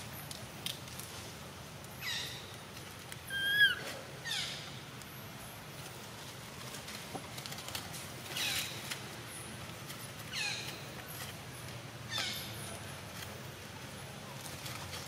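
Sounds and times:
raspy falling animal calls: 3.2s - 4.6s
high-pitched animal squeak: 3.3s - 4.0s.

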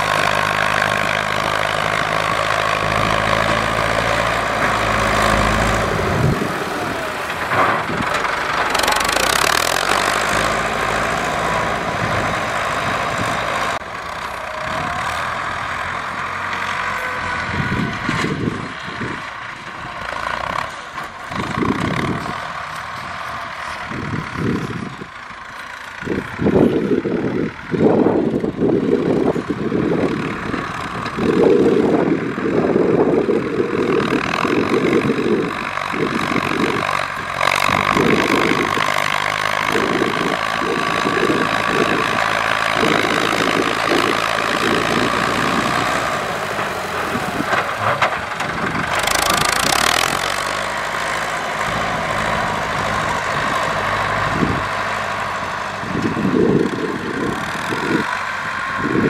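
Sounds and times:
blade pushing soil: 0.0s - 13.8s, 30.6s - 59.0s
tractor engines running: 0.0s - 59.0s.

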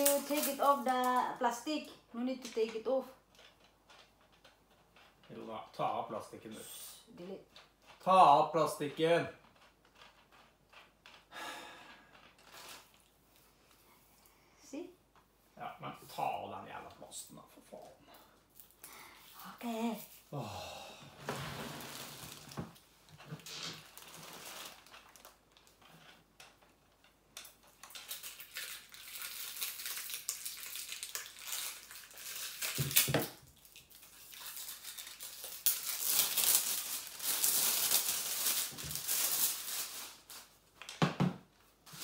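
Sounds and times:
plastic wrapping crinkling: 0.0s - 6.6s, 12.0s - 13.5s, 21.2s - 41.0s.

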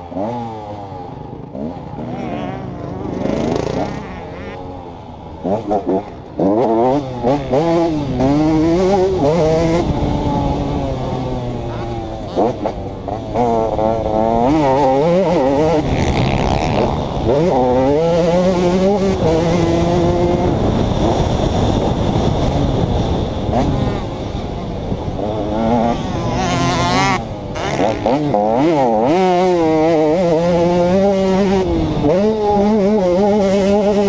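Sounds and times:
dirt bike engine revving: 0.0s - 34.0s.

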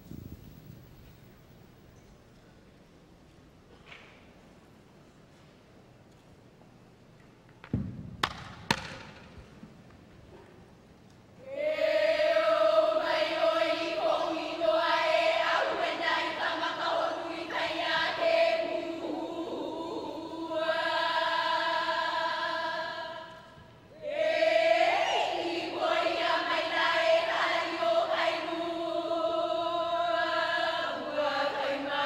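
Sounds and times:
sharp knocks: 7.7s - 9.4s
women chanting in unison: 11.4s - 32.0s.

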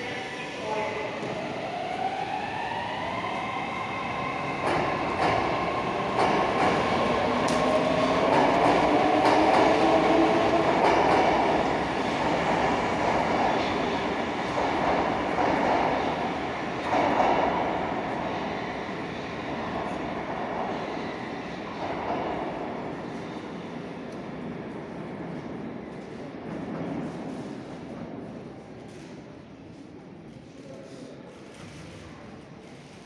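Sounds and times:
train rolling rumble: 0.0s - 30.2s.

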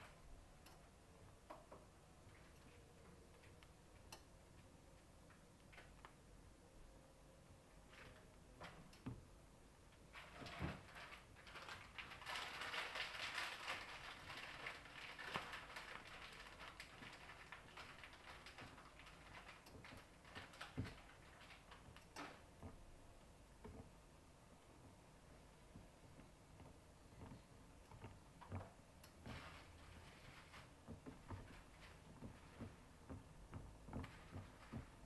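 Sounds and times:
pan crackling and ticking: 10.0s - 35.0s.

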